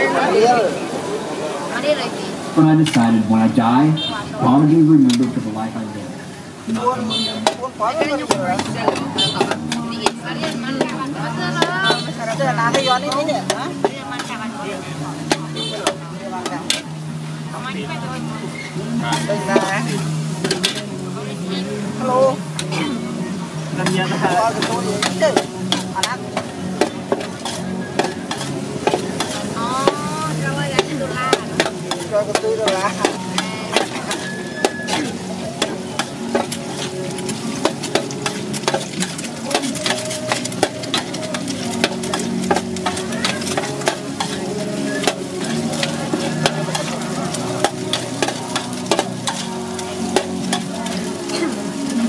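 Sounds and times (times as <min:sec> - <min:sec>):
noodles sizzling in a wok: 0:06.5 - 0:52.0
metal spatula scraping a wok: 0:19.0 - 0:20.9, 0:24.2 - 0:29.6, 0:30.3 - 0:51.7.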